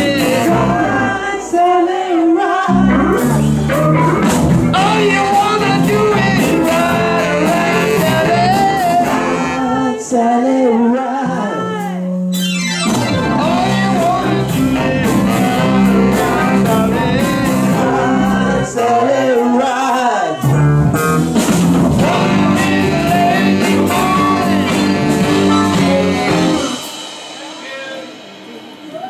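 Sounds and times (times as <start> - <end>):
bass guitar: 0.0 - 1.4, 2.7 - 9.9, 11.2 - 26.9
saxophone: 2.1 - 10.1, 11.4 - 18.6, 22.0 - 27.0
electric guitars: 2.6 - 9.9, 11.2 - 19.2, 20.4 - 27.4
woman singing: 4.8 - 12.2.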